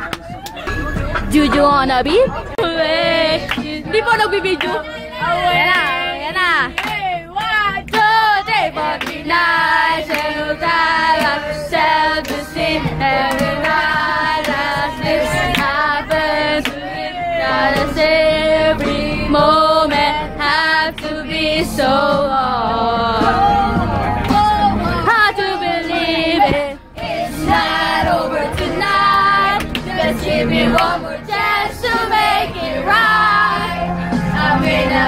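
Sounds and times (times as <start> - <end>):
hand claps: 0.0 - 0.6, 3.5 - 3.7, 6.7 - 8.1, 9.0 - 9.2, 10.1 - 10.3, 11.2 - 11.4, 29.6 - 29.9
music: 0.0 - 35.0
young voices singing: 2.4 - 35.0.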